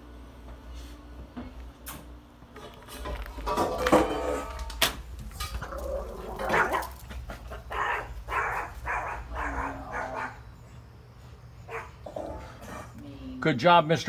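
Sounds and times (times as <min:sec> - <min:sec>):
dog barking: 0:07.6 - 0:10.4, 0:11.7 - 0:12.0.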